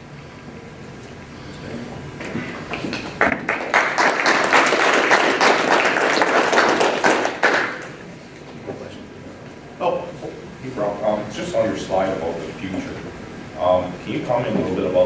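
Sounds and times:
audience applauding: 0:02.7 - 0:08.0.

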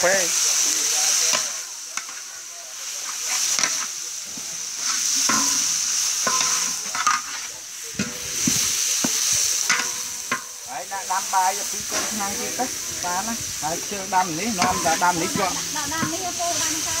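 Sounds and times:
food sizzling in a hot pan: 0:00.0 - 0:17.0
utensil scraping and knocking pan: 0:03.3 - 0:10.6, 0:14.1 - 0:16.9.

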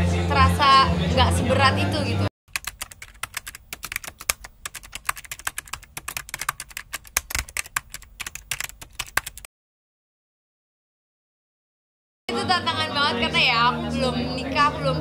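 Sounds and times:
keyboard keystroke clicks: 0:02.5 - 0:09.4.

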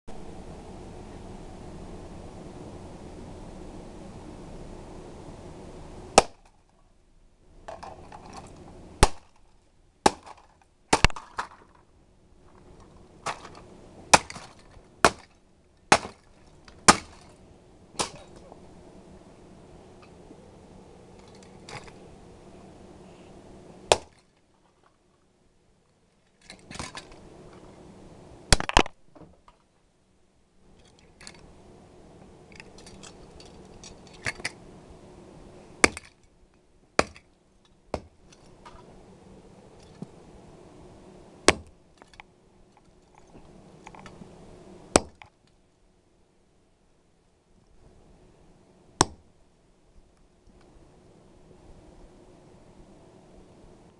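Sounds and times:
steady low hum: 0:00.1 - 0:53.9
broken plastic parts rattling: 0:26.3 - 0:27.2.

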